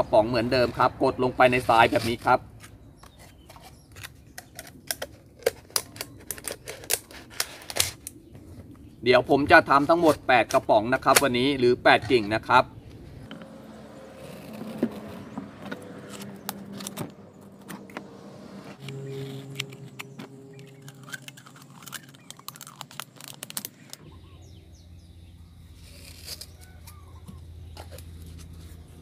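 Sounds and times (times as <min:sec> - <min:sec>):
low hum: 0:12.6 - 0:29.0.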